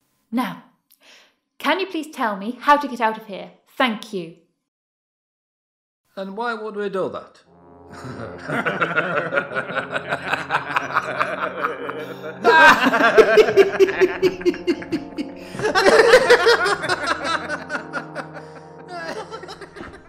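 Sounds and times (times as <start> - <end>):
background music held notes: 7.5 - 20.0
men laughing: 7.9 - 20.0.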